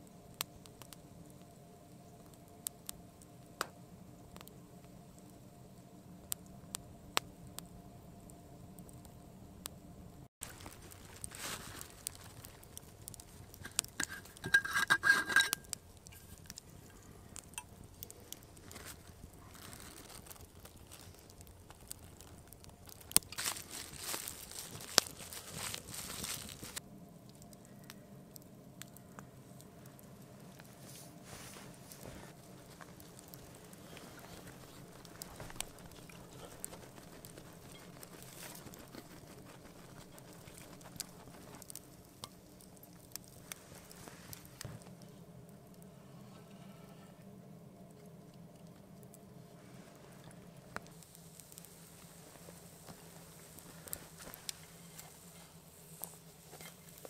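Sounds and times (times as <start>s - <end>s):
campfire crackling and popping: 0.0s - 45.9s, 47.3s - 57.0s
faint rustling: 10.4s - 26.8s, 30.5s - 45.2s
oil sizzling: 10.4s - 26.8s
metal bottle clinking and scraping: 13.6s - 16.4s.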